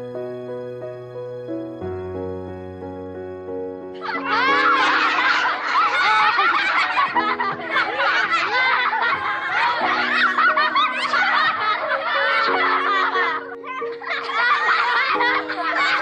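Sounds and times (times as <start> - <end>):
background music with sustained chords: 0.0 - 16.0
boys laughing and giggling: 4.0 - 16.0.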